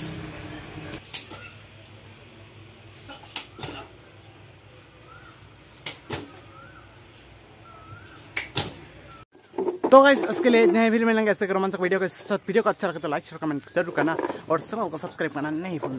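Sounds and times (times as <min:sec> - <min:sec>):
faint bird chirps: 0:05.0 - 0:05.4, 0:06.3 - 0:08.3.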